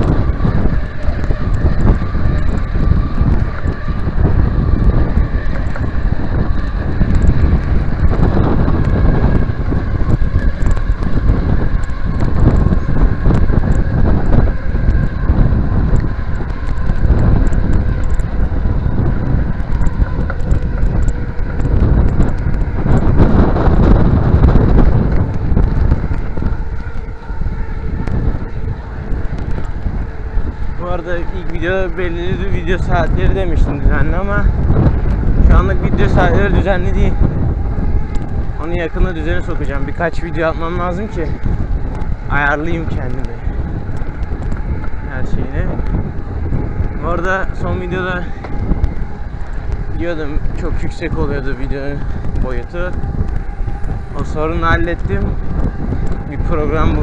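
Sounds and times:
bicycle rolling over pavement: 0:00.0 - 0:57.0
wind buffeting microphone: 0:00.0 - 0:57.0.

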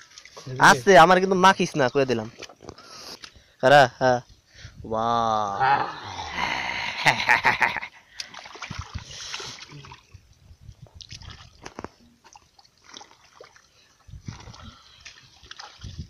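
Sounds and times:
squelching in mud: 0:08.0 - 0:10.2, 0:10.8 - 0:16.0
hands splashing in water: 0:08.2 - 0:10.1, 0:11.0 - 0:16.0.

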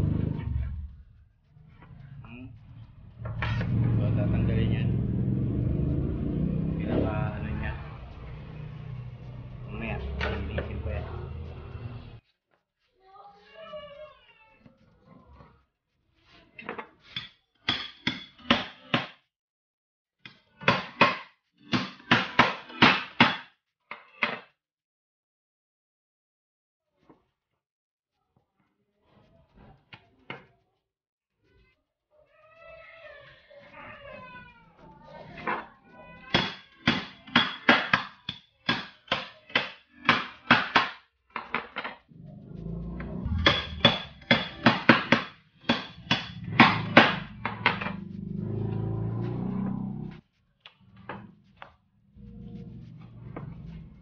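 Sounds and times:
cleaver chopping on wooden board: 0:20.6 - 0:23.5, 0:36.4 - 0:41.0, 0:43.4 - 0:47.9.

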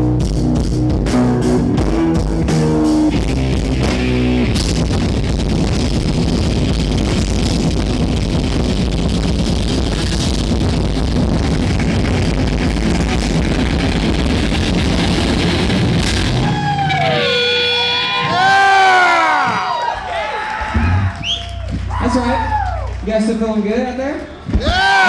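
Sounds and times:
thrash metal band playing live: 0:00.0 - 0:19.6
ringing guitar tones: 0:01.0 - 0:19.6
crowd whooping: 0:16.2 - 0:23.1, 0:24.3 - 0:25.0.

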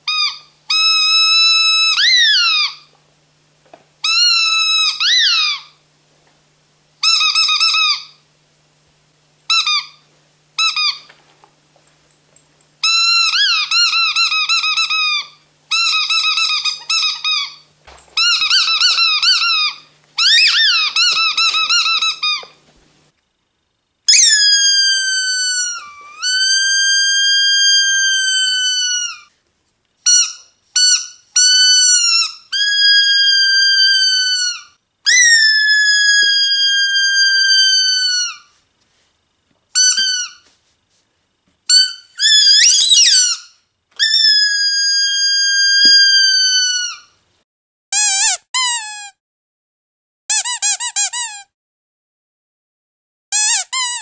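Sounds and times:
squeaky toy long squeals: 0:00.0 - 0:02.9, 0:04.0 - 0:05.8, 0:07.0 - 0:08.2, 0:09.5 - 0:10.0, 0:10.6 - 0:11.1, 0:12.8 - 0:22.6, 0:24.1 - 0:29.3, 0:30.0 - 0:38.6, 0:39.8 - 0:40.5, 0:41.7 - 0:47.2, 0:48.0 - 0:49.2, 0:50.3 - 0:51.5, 0:53.3 - 0:54.0
squeaky dog toy squeaks: 0:00.1 - 0:02.9, 0:04.0 - 0:05.7, 0:07.0 - 0:08.2, 0:09.5 - 0:10.0, 0:10.6 - 0:11.1, 0:12.8 - 0:22.5, 0:24.1 - 0:29.3, 0:30.0 - 0:38.5, 0:39.8 - 0:40.5, 0:41.7 - 0:47.1, 0:48.0 - 0:49.2, 0:50.3 - 0:51.5, 0:53.3 - 0:54.0.

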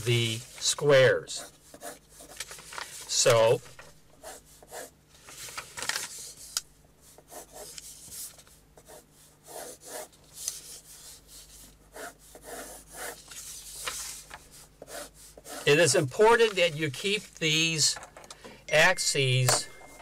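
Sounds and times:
pencil scratching on paper: 0:00.3 - 0:02.4, 0:04.1 - 0:05.0, 0:06.2 - 0:16.4.

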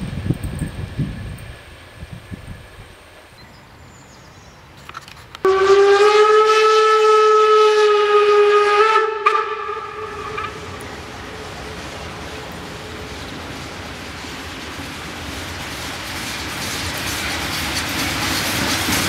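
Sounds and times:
faint approaching train: 0:00.0 - 0:19.0
steam whistle blast: 0:05.5 - 0:11.5.

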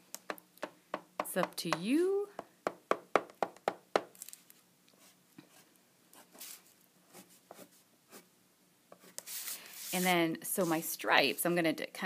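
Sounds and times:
oil pastel strokes on paper: 0:06.2 - 0:08.3, 0:09.0 - 0:11.6.

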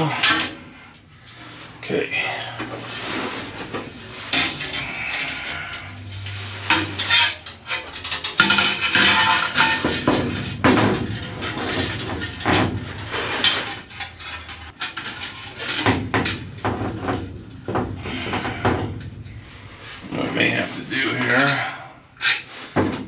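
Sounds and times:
metal tank knocking and clanking: 0:06.6 - 0:20.6, 0:22.7 - 0:23.0.

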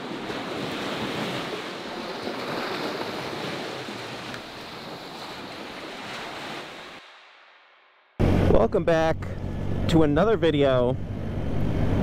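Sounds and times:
small waves: 0:00.0 - 0:08.6.

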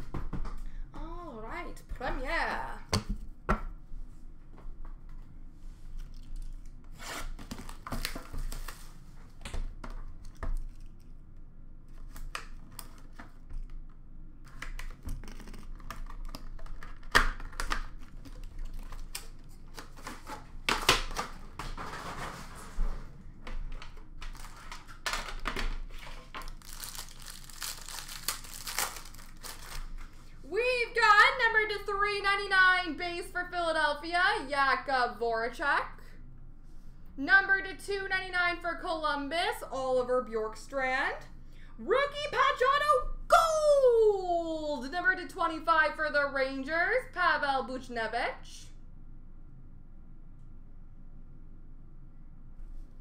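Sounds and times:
packaging rustling and crinkling: 0:07.3 - 0:09.4, 0:14.5 - 0:22.8, 0:23.6 - 0:30.4
packaging tearing: 0:14.6 - 0:20.3, 0:24.3 - 0:30.2.

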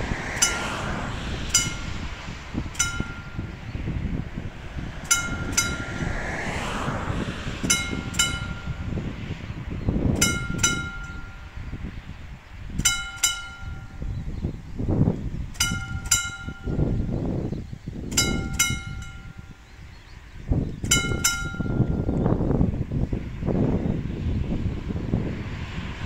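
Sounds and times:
level crossing warning bell ringing: 0:00.3 - 0:02.1, 0:02.7 - 0:03.6, 0:05.0 - 0:06.2, 0:07.6 - 0:09.0, 0:10.2 - 0:11.6, 0:12.8 - 0:14.2, 0:15.6 - 0:17.1, 0:18.1 - 0:19.7, 0:20.9 - 0:22.1.

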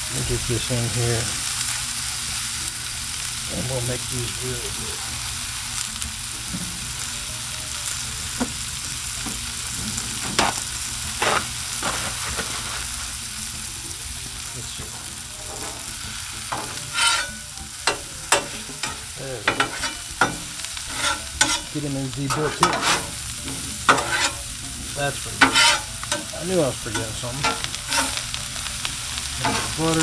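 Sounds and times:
vegetables sizzling on griddle: 0:00.0 - 0:30.0
metal spatulas scraping griddle: 0:11.2 - 0:12.9, 0:15.4 - 0:28.4, 0:29.4 - 0:30.0.

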